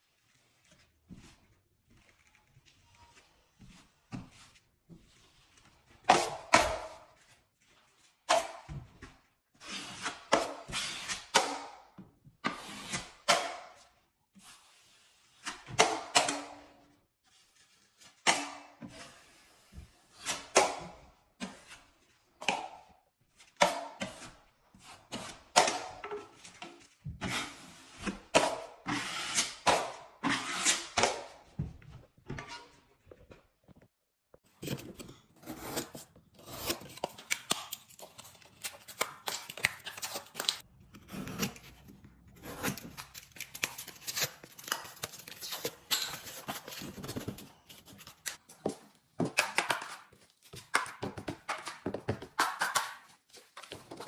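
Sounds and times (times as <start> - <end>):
drywall knife scraping wall: 27.2 - 31.3.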